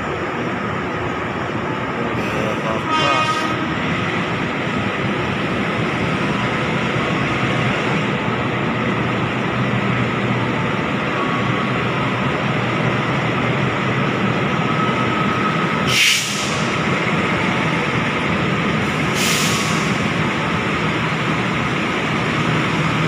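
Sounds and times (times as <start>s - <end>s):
train wheels rumbling on rails: 0.0s - 23.0s
high-pitched train toot: 2.2s - 4.4s.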